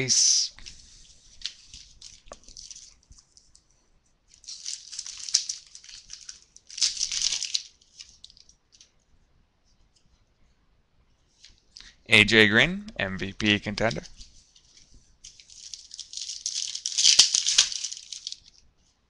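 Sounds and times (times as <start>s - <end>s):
card packaging crinkling: 0.6s - 3.6s, 4.3s - 8.9s, 14.6s - 18.6s.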